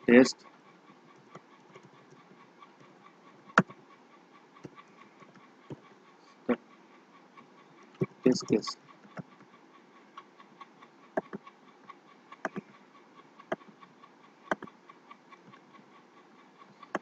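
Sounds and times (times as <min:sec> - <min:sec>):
faint background noise: 0:00.0 - 0:17.0
computer mouse clicks: 0:03.5 - 0:03.8, 0:11.1 - 0:11.5, 0:12.3 - 0:12.8, 0:14.5 - 0:15.7, 0:16.8 - 0:17.0.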